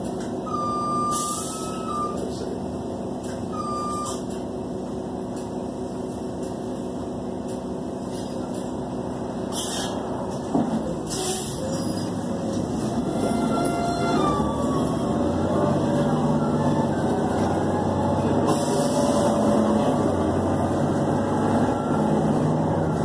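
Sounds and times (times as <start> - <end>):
bus engine hum: 0.0 - 23.0
short electronic beeps: 0.5 - 2.3, 3.5 - 4.3.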